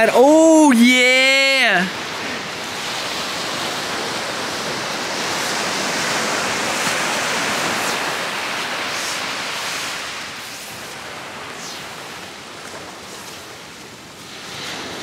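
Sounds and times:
surf washing up beach: 0:00.0 - 0:15.0.

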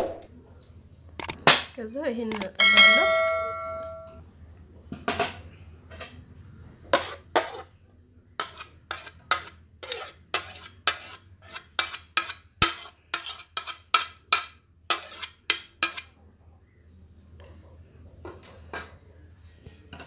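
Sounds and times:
spoon stirring and clicking in bowl: 0:02.3 - 0:04.2.

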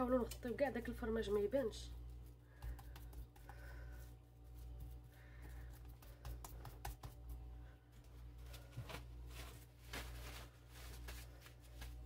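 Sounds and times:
steady low hum: 0:00.0 - 0:12.0
plastic cling film crinkling: 0:08.6 - 0:12.0.

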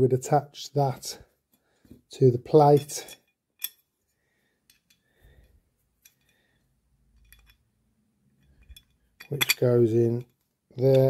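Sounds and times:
metal fittings clicking and tapping: 0:02.6 - 0:03.8, 0:04.6 - 0:05.1, 0:06.0 - 0:06.5, 0:07.1 - 0:07.6, 0:08.4 - 0:11.0.

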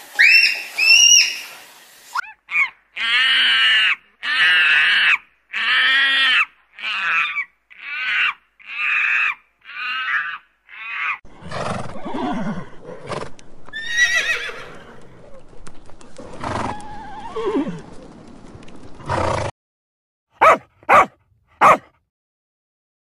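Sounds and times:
monkey calling: 0:00.2 - 0:01.5, 0:02.2 - 0:11.2
horses grunting and snorting: 0:11.3 - 0:18.1
horse whinny: 0:11.4 - 0:15.0.

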